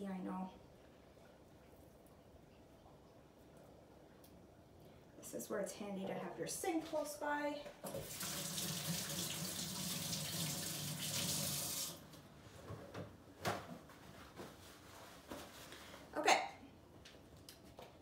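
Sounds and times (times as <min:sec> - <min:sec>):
faucet running: 0:07.9 - 0:12.0.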